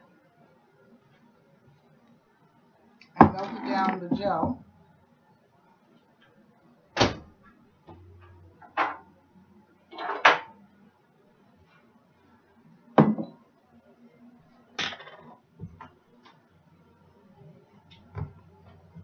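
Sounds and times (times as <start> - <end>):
kitchen items knocking and clattering: 3.2 - 4.6.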